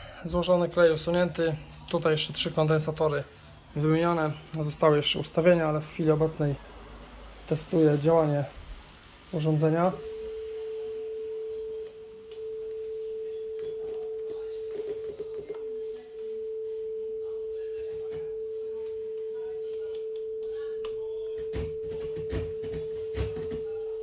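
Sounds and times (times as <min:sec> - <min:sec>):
sine test tone: 0:09.8 - 0:24.0.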